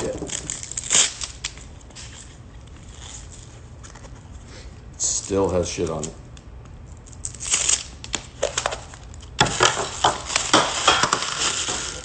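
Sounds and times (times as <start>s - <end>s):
paper wrapping crinkling and tearing: 0.0s - 4.2s, 7.0s - 12.0s.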